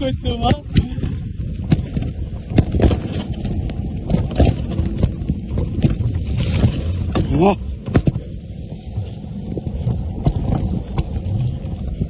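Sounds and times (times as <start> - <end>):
bike rattling: 0.0 - 12.0
bike tyres rumbling on dirt: 0.0 - 12.0
wind on microphone: 0.0 - 12.0
sharp knocks over bumps: 0.4 - 8.4.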